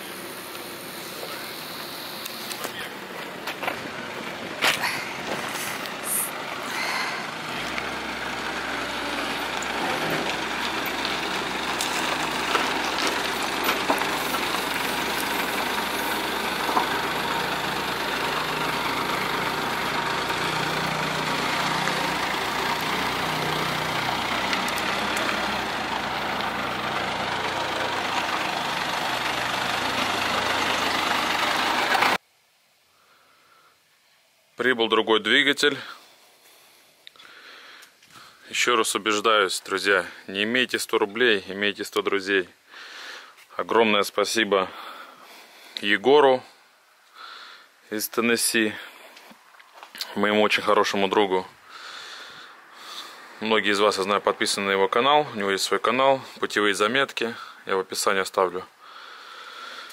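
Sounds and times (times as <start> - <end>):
vehicle engine drone: 0.0 - 32.2, 50.8 - 56.8.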